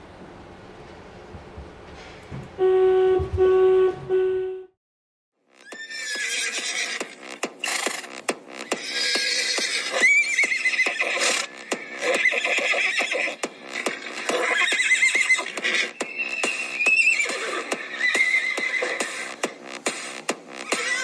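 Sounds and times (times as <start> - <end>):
horse neighing: 5.7 - 7.2, 8.7 - 19.3, 20.6 - 21.0.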